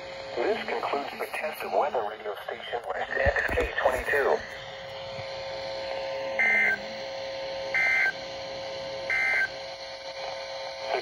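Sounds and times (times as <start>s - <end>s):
data tone bursts from radio speaker: 6.4s - 7.1s, 7.8s - 8.2s, 9.1s - 9.6s.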